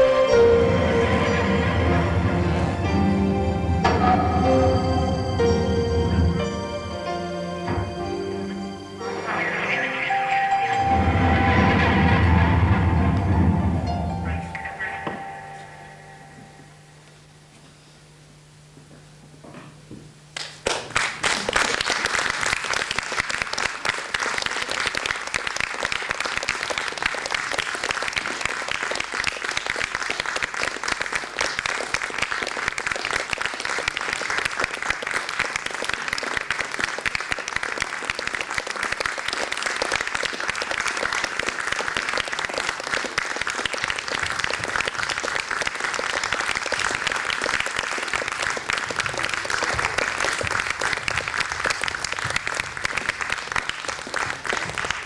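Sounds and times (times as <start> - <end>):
audience applauding: 20.4 - 55.0.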